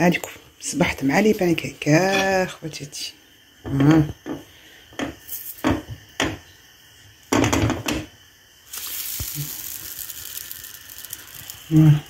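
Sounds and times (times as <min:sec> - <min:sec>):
batter sizzling in a hot pan: 0:04.8 - 0:12.0.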